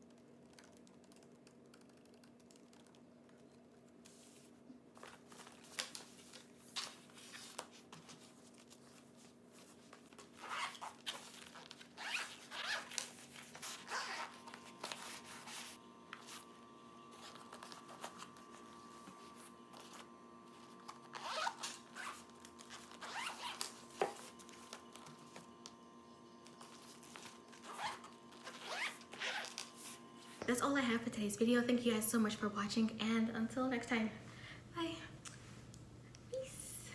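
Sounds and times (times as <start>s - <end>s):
zipper pulled: 10.4s - 15.6s, 20.9s - 23.7s, 27.6s - 29.7s.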